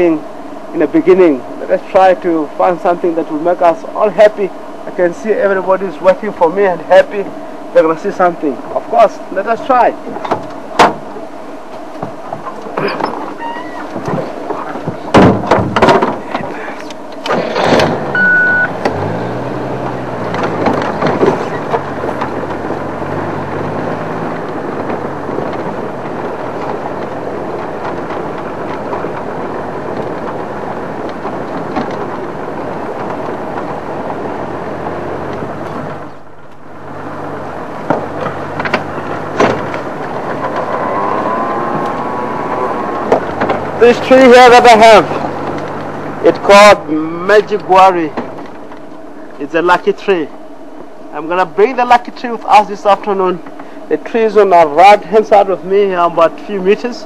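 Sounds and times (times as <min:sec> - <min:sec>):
vehicle engine starting and running: 0:00.0 - 0:57.0
loud clunks: 0:10.2 - 0:11.2, 0:12.0 - 0:16.6, 0:17.2 - 0:18.2, 0:19.8 - 0:22.7, 0:37.8 - 0:40.9, 0:43.0 - 0:43.8.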